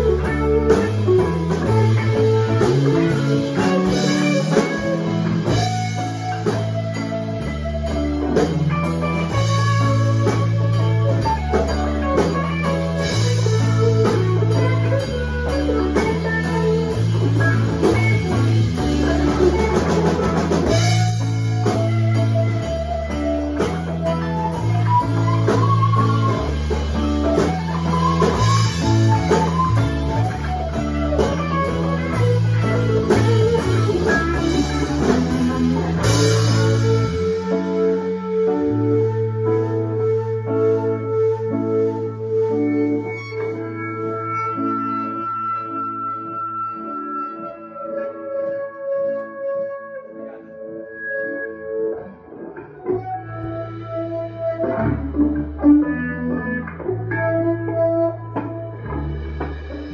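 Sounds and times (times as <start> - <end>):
drum kit beat: 0.0 - 38.4, 53.0 - 59.9
electric bass: 0.0 - 49.2, 50.9 - 59.9
electric guitars: 0.0 - 59.9.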